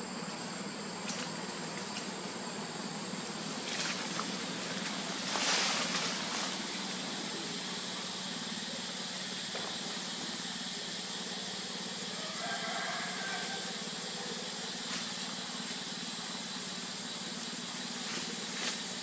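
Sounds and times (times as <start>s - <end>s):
background hiss with high whine: 0.0s - 19.0s
rustle of dry leaf litter: 0.4s - 8.6s, 12.1s - 19.0s.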